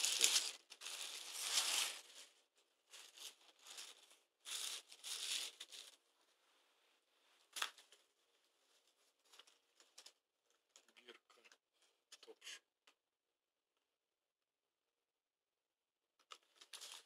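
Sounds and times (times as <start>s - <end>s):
tissue paper rustling: 0.0s - 10.1s, 16.4s - 17.0s.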